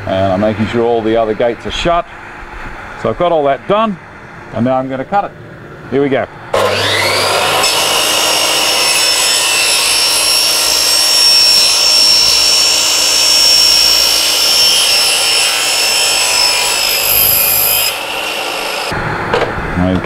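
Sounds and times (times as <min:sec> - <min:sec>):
mitre saw whining: 0:06.5 - 0:19.0
saw blade cutting plastic: 0:06.6 - 0:19.0.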